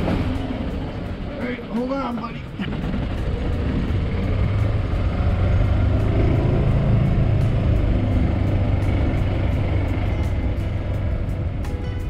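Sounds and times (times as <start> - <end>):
golf cart running noise: 0.0 - 12.0.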